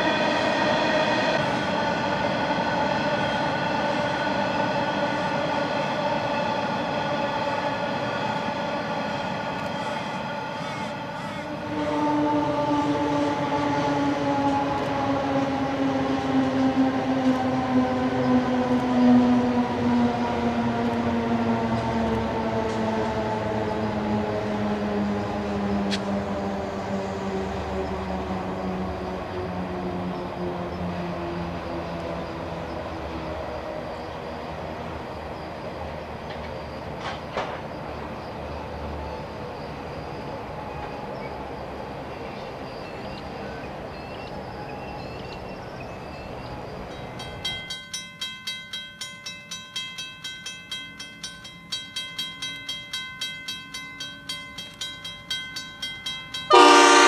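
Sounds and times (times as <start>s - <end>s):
diesel locomotives droning: 0.0s - 57.0s
train wheels rumbling on rail: 0.0s - 57.0s.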